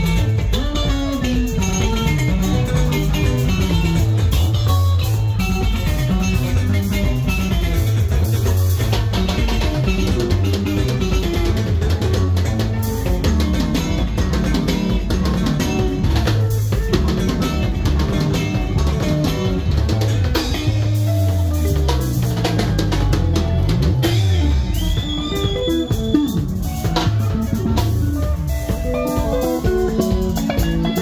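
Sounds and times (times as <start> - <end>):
drum kit beat: 0.0 - 31.0
electric bass line: 0.0 - 31.0
electric guitars: 0.0 - 31.0.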